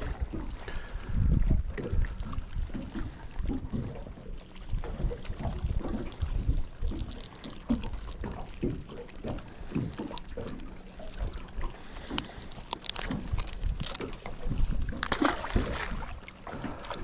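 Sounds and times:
wind on microphone: 0:00.0 - 0:07.2
water slapping against boat hull: 0:00.0 - 0:17.0.

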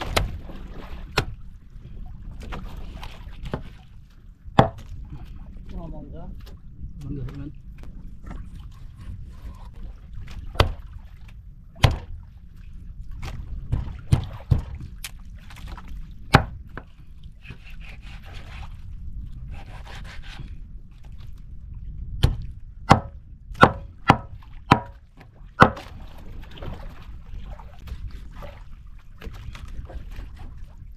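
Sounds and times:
steady low rumble: 0:00.0 - 0:17.4, 0:20.4 - 0:30.9
knife chopping on a wooden board: 0:04.6 - 0:04.8, 0:22.2 - 0:25.0, 0:25.6 - 0:25.8.

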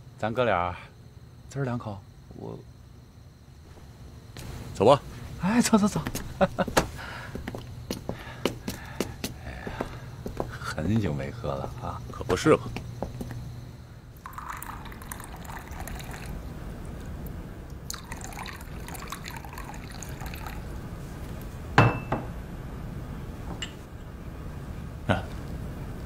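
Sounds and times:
liquid pouring into cups: 0:14.2 - 0:16.5, 0:17.8 - 0:20.8.

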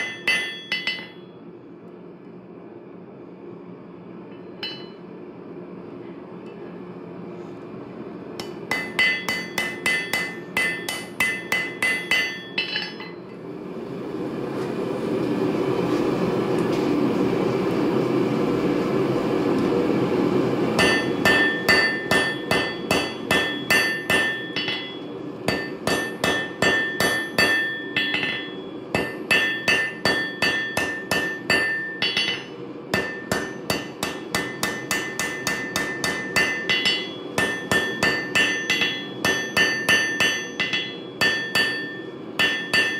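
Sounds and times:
hammer ringing on anvil: 0:00.0 - 0:01.4, 0:04.4 - 0:05.0, 0:08.4 - 0:13.3, 0:20.8 - 0:42.9
steady rushing roar: 0:08.3 - 0:42.9.

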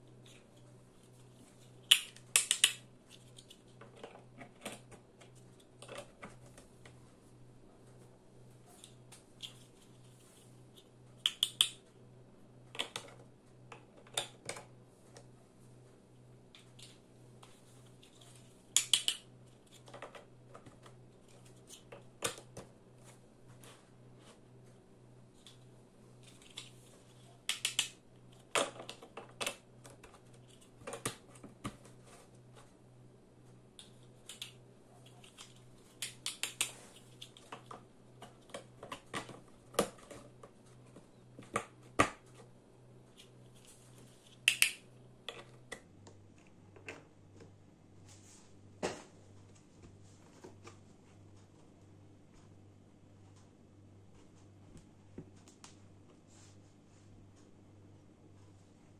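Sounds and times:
plastic toy blocks clicking: 0:01.9 - 0:03.6, 0:11.2 - 0:11.8, 0:18.8 - 0:20.2, 0:27.5 - 0:31.2, 0:44.4 - 0:45.8.

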